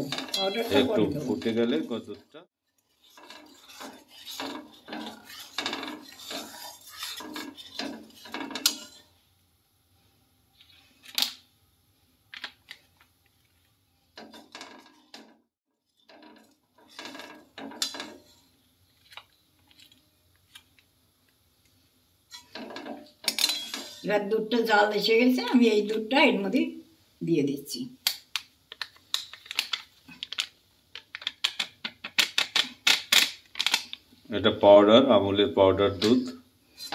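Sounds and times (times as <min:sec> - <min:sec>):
metal spatula scraping a metal pan: 0:00.0 - 0:02.0, 0:02.7 - 0:09.2, 0:15.9 - 0:18.6, 0:22.3 - 0:24.2.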